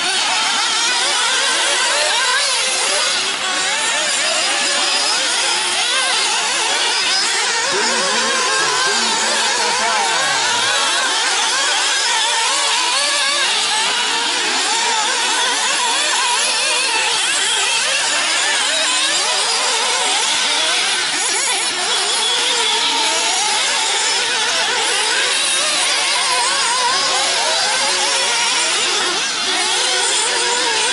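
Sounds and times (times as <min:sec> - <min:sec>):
rc buggy engines whining: 0:00.0 - 0:30.9.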